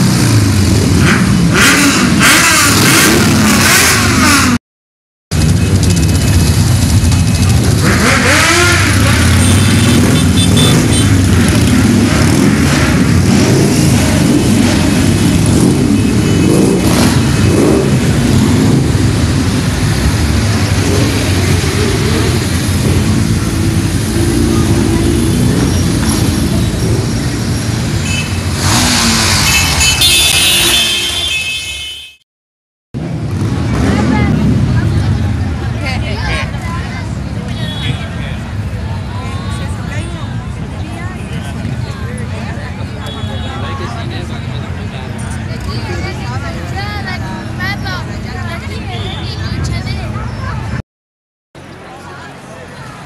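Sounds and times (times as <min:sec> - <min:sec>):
motorcycle engine revving: 0:00.0 - 0:04.6, 0:05.3 - 0:31.3, 0:33.0 - 0:36.9
motorcycles riding past: 0:05.4 - 0:31.6, 0:33.0 - 0:50.8.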